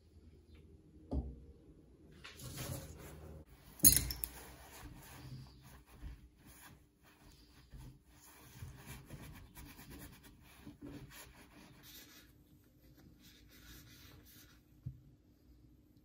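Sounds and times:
paper towel rubbing and rustling: 4.4s - 14.6s.

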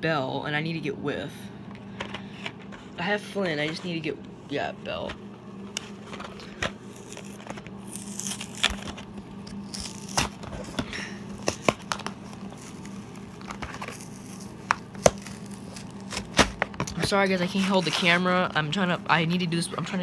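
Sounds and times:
low steady hum: 0.0s - 20.0s
packaging rustles and scrapes: 5.8s - 18.5s.

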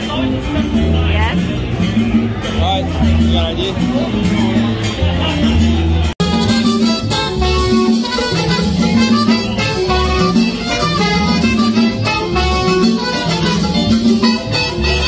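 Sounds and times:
live band playing upbeat groove: 0.0s - 15.0s
repeating bass line: 0.0s - 15.0s
horns playing held notes: 6.2s - 15.0s.

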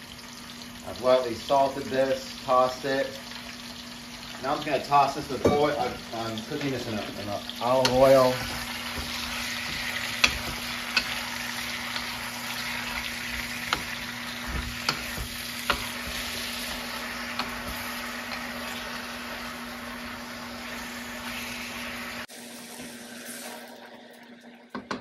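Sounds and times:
vegetables sizzling in a pan: 0.0s - 24.1s
wooden spoon knocking on pan: 7.8s - 18.6s.

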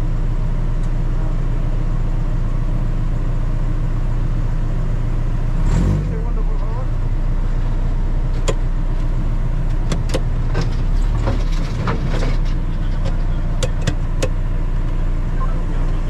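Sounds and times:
vehicle engine rumble: 0.0s - 16.0s
sharp knocks and rattles: 9.7s - 14.4s.

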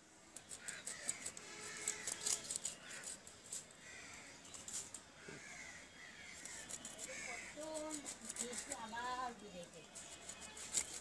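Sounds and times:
crows cawing: 0.5s - 4.5s, 5.2s - 9.1s.

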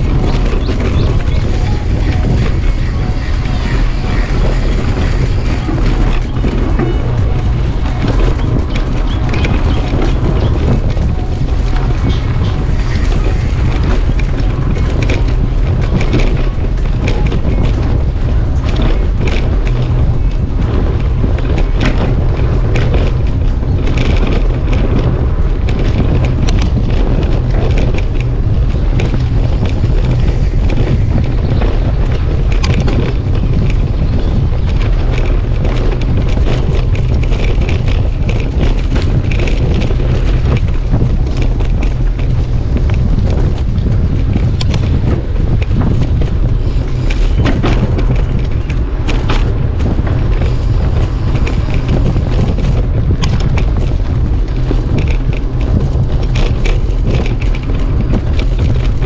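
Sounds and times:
bike rattling clicks and knocks: 0.0s - 59.0s
tyres rumbling on dirt track: 0.0s - 59.0s
wind buffeting camera: 0.0s - 59.0s.

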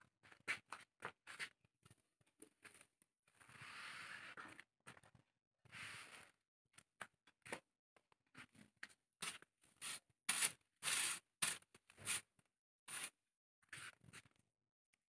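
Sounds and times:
broom sweeping concrete floor: 9.2s - 12.3s, 12.9s - 13.2s.

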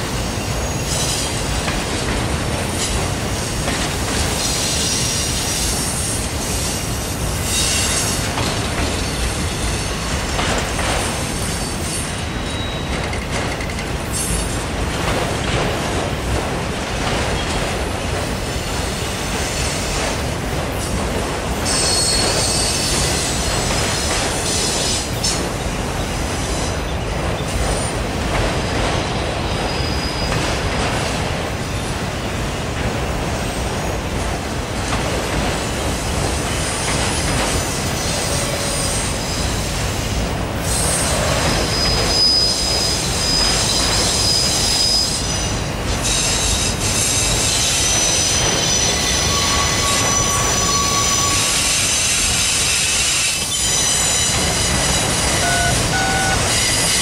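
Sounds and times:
freight cars rumbling on rails: 0.0s - 57.0s
high-pitched wheel squeals: 47.9s - 51.7s, 53.5s - 57.0s.

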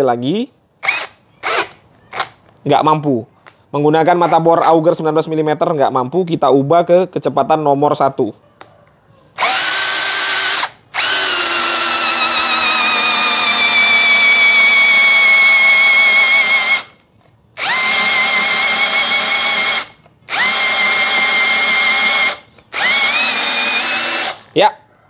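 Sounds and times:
drill motor whining into wood: 0.8s - 2.4s, 9.4s - 17.0s, 17.6s - 24.6s.

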